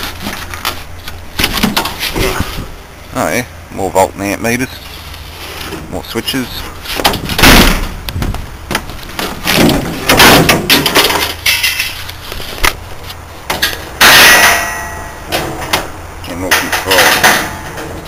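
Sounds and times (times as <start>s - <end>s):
scraping rustling noise: 0.0s - 2.8s, 4.7s - 7.4s, 11.0s - 13.9s.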